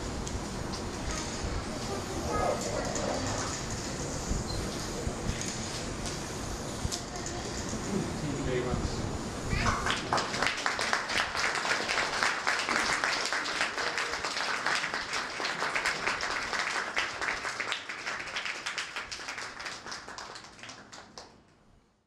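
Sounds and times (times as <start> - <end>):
audience applauding: 9.6 - 21.5.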